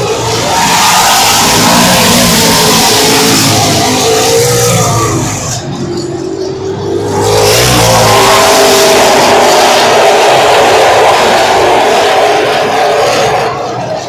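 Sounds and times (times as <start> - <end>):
race cars passing at full throttle: 0.0 - 14.0.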